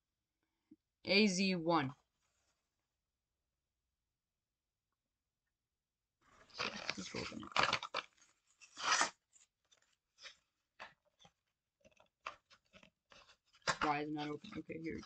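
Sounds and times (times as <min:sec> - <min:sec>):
small clicks and rustles: 0:06.2 - 0:15.0
plastic package crackling: 0:06.5 - 0:09.1
card ripping: 0:06.5 - 0:09.2.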